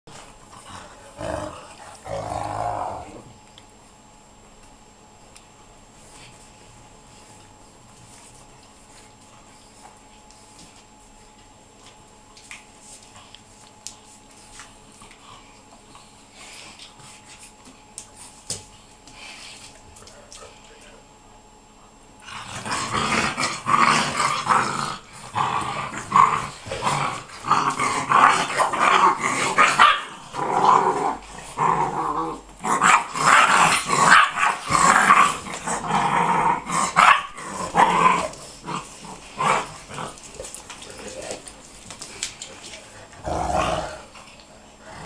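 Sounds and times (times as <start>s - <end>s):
puppies growling: 0.2s - 3.4s, 22.2s - 45.0s
puppies barking: 29.6s - 30.2s, 36.9s - 37.8s.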